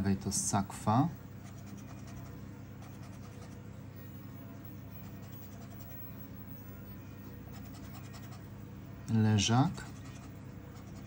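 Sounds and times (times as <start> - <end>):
steady low hum: 0.0 - 11.0
scraping scratch card: 7.3 - 8.4, 9.8 - 11.0.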